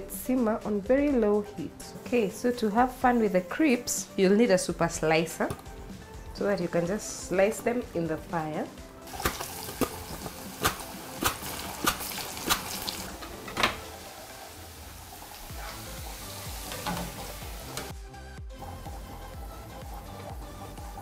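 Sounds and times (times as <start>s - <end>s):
oil sizzling: 9.1s - 18.0s, 18.6s - 21.0s.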